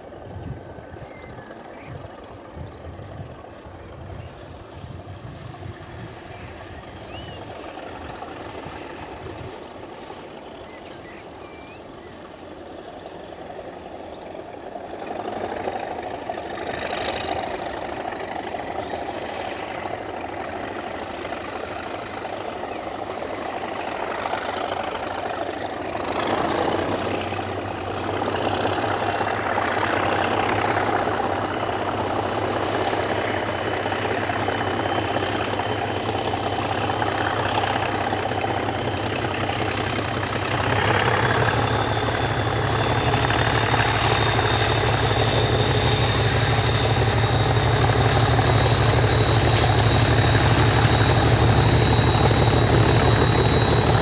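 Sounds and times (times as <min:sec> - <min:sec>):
diesel locomotive engine: 0:00.0 - 0:54.0
faint high whistle: 0:45.4 - 0:54.0.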